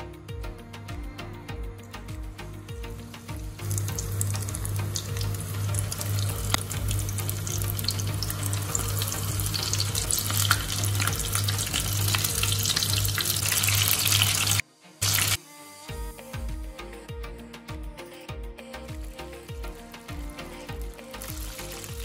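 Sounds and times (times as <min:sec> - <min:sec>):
background music: 0:00.0 - 0:22.0
prawns deep-frying in oil: 0:03.6 - 0:15.4, 0:20.7 - 0:22.0.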